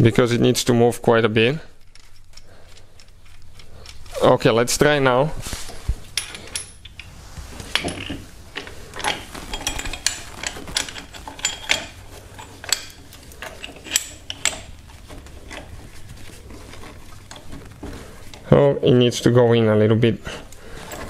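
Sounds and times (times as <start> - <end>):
steel tool parts clinking: 7.7 - 15.7.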